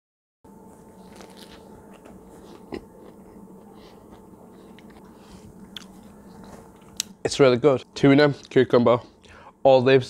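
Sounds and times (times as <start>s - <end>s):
steady low hum: 0.5s - 10.0s
person chewing a sandwich: 0.7s - 7.2s.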